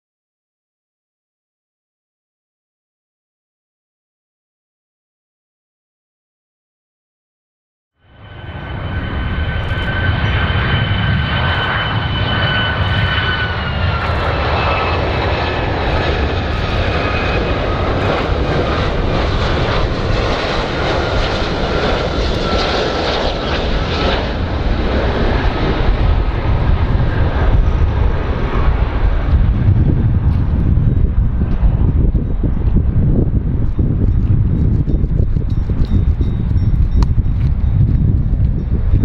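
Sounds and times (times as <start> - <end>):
jet engine low rumble: 8.0 - 39.0.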